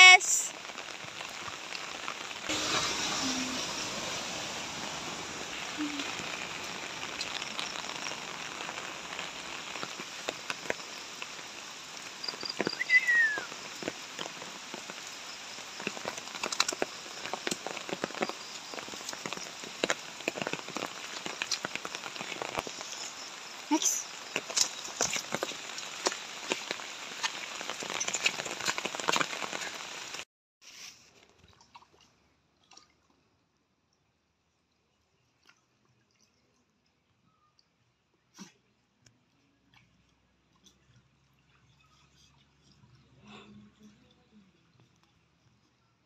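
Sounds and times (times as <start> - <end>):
rain on grass and leaves: 0.0 - 31.2.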